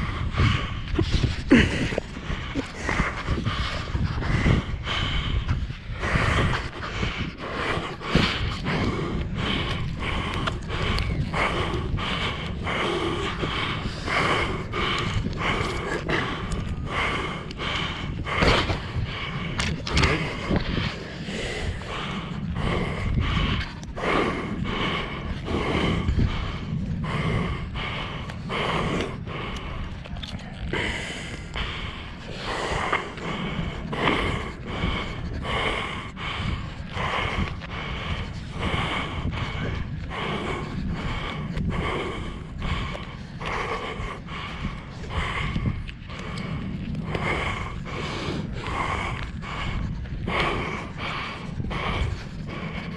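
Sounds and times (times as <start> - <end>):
seal huffing hoarsely: 0.0 - 52.9
wind rumble on microphone: 0.0 - 52.9.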